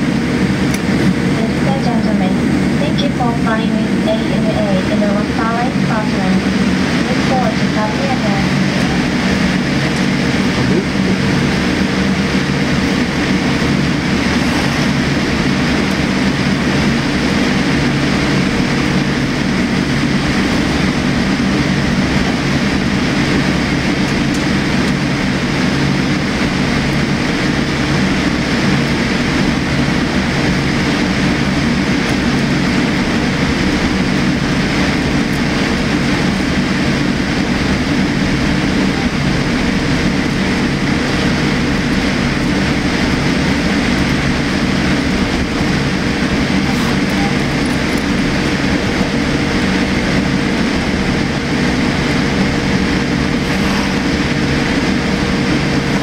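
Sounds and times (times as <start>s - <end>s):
jet engines idling in cabin: 0.0s - 56.0s.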